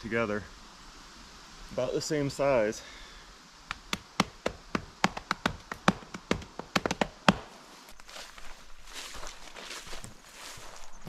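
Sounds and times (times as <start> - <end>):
sharp taps: 3.7 - 7.4.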